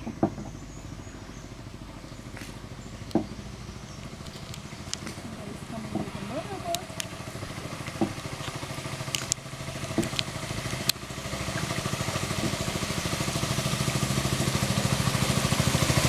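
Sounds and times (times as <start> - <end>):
boat engine chugging: 0.0 - 16.0
sharp clicks: 4.0 - 5.2, 6.7 - 7.1, 7.9 - 9.4.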